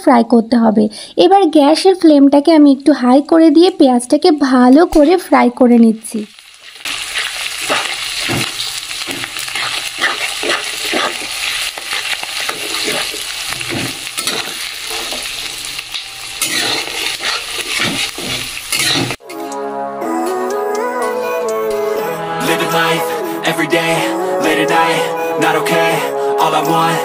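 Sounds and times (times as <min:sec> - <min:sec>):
onions sizzling in hot oil: 0:02.8 - 0:19.2
metal spatula scraping pan: 0:07.1 - 0:15.3, 0:15.9 - 0:19.2
music: 0:19.2 - 0:27.0.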